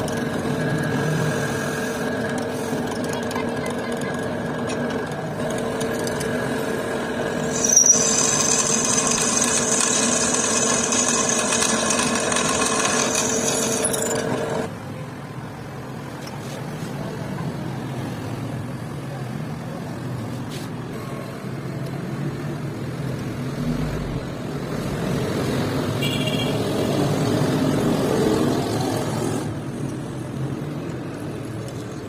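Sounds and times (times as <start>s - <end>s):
drill press motor running: 0.0s - 14.7s
shop noise: 0.0s - 32.0s
drill bit screeching on metal: 7.4s - 14.6s.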